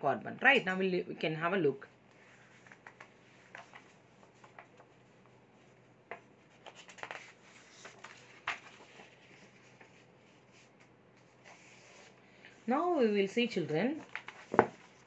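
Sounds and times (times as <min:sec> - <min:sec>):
paper rustling and crackling: 0:02.2 - 0:12.2, 0:13.8 - 0:15.0.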